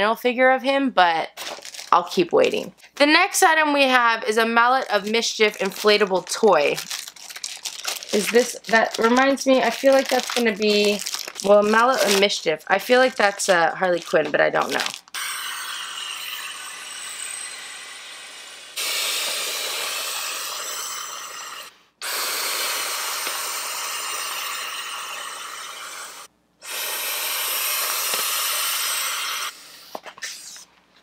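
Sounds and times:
person blowing into inflatable toy: 14.8 - 30.7
person inhaling: 18.6 - 30.6.

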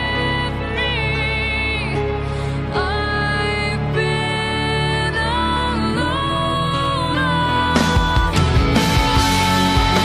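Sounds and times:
rock music with drums: 7.7 - 10.0.

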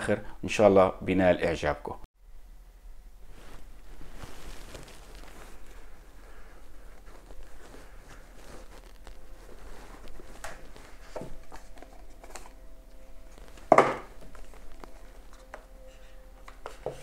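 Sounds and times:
cardboard rubbing: 3.6 - 12.6.

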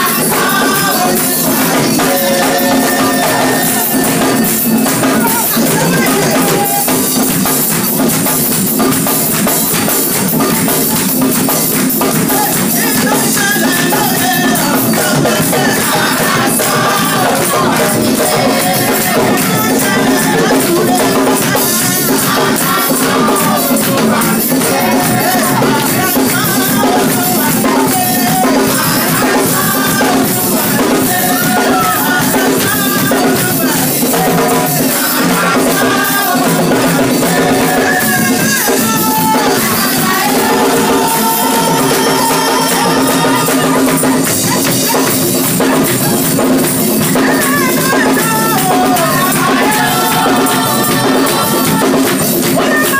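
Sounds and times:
group singing: 0.0 - 52.9
hand drums: 0.0 - 52.9
high jingling percussion: 0.0 - 52.9.

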